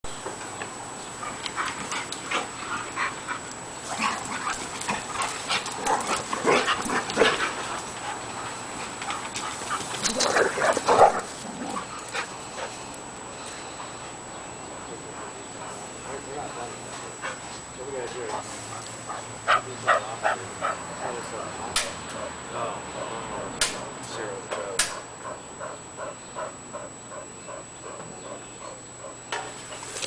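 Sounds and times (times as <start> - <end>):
dogs play-wrestling vocalising: 1.0 - 13.0, 25.0 - 30.0.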